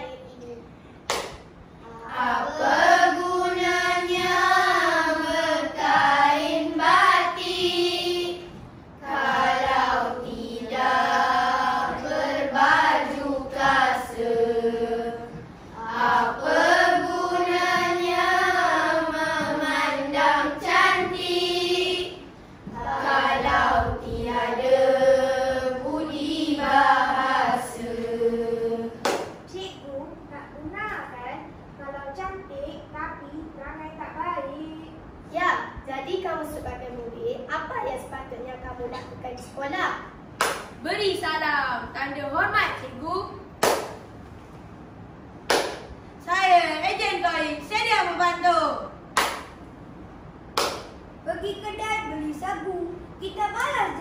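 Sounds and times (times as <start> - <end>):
children singing in unison: 1.8 - 29.1.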